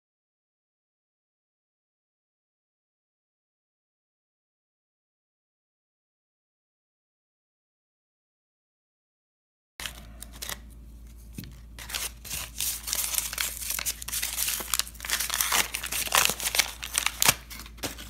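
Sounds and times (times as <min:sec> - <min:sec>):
paper mailer crinkling: 0:09.8 - 0:18.0
plastic bag crackling: 0:11.8 - 0:18.0.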